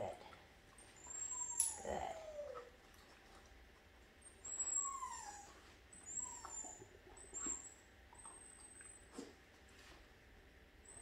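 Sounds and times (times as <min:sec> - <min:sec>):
puppy whining: 0:00.8 - 0:03.2, 0:04.2 - 0:09.4.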